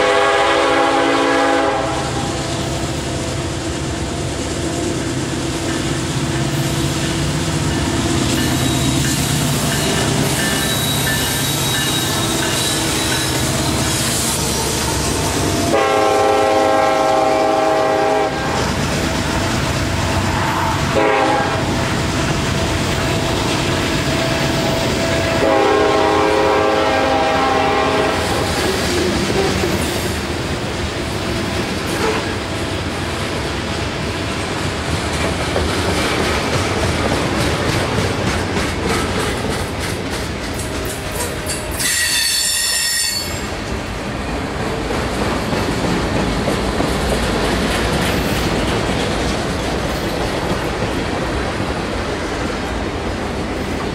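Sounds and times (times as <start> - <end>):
freight train rumble: 0.0 - 53.9
wheels clacking over rail joints: 5.1 - 15.9, 28.4 - 42.6, 43.5 - 53.9
high-pitched squeal: 7.8 - 15.8.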